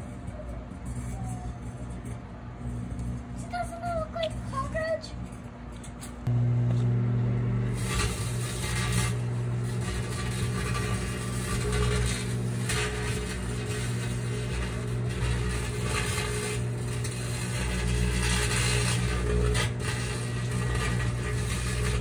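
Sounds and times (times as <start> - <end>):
electrical arcing crackle: 6.2 - 22.0
microwave oven humming: 6.2 - 22.0.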